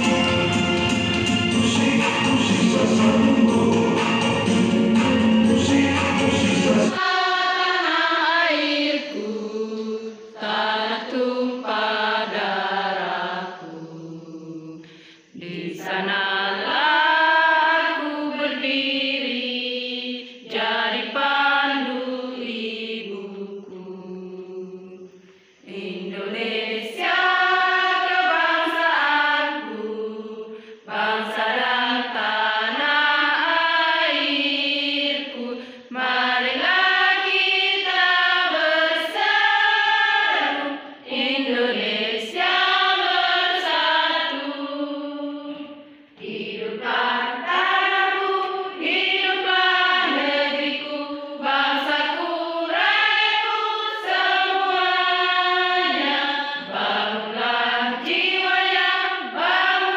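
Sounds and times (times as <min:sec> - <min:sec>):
music with bass line: 0:00.0 - 0:06.9
women singing unaccompanied: 0:06.8 - 0:14.8, 0:15.4 - 0:25.0, 0:25.7 - 0:59.9.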